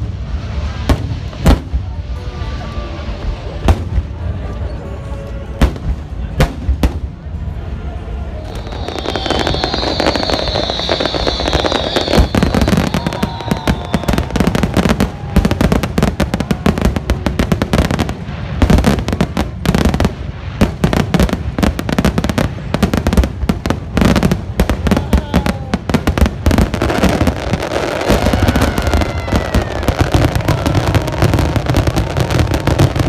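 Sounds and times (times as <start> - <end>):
fireworks bangs and crackles: 0.0 - 33.0
high wavering whistle: 8.4 - 14.5.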